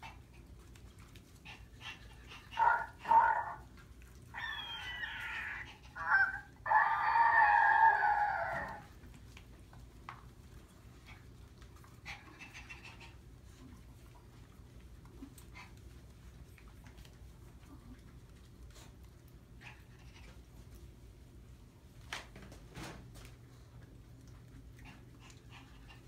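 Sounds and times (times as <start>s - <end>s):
puppies whining: 1.7s - 8.9s
puppies yipping: 4.3s - 8.8s.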